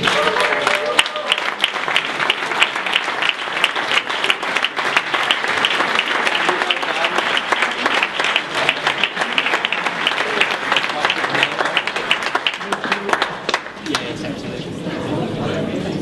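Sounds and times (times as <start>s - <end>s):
audience applauding: 0.0s - 14.2s.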